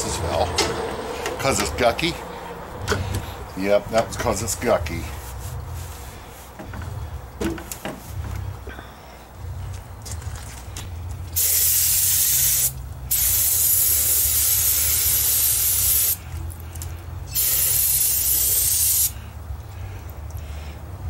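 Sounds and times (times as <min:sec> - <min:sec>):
aerosol can spraying: 0:11.4 - 0:16.2, 0:17.4 - 0:19.2.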